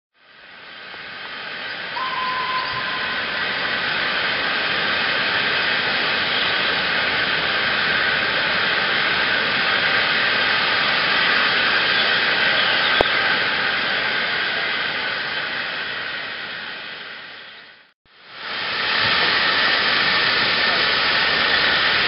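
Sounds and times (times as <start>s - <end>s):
hiss of escaping steam: 0.6s - 17.4s, 18.2s - 22.0s
faint steady tone: 1.6s - 4.6s.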